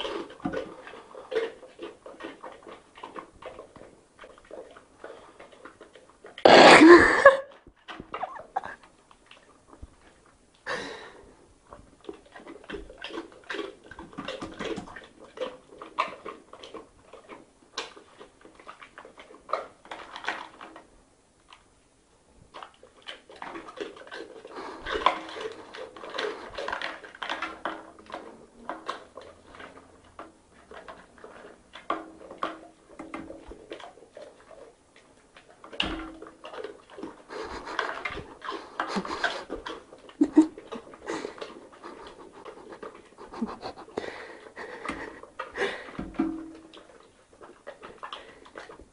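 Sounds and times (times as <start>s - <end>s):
dog chewing wetly: 0.0s - 48.9s.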